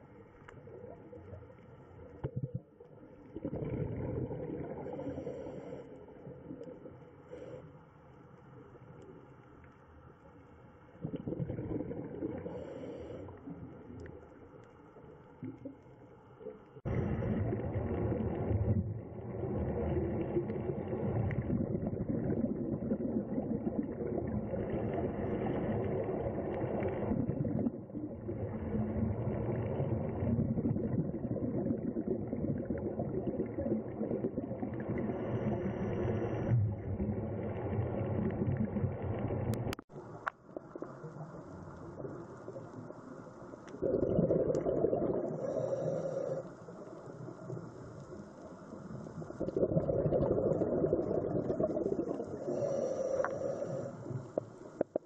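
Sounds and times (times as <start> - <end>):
faint steady hum: 0.0 - 55.0
quiet hiss: 34.7 - 43.8, 45.4 - 49.6, 51.9 - 55.0.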